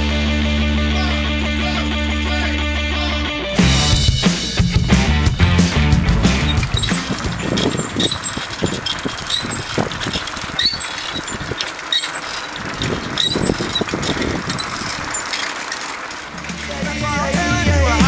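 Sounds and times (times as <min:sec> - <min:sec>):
tyre and road noise: 0:03.6 - 0:18.0
bicycle frame rattling: 0:06.2 - 0:18.0
brief high squeaks: 0:06.5 - 0:15.8.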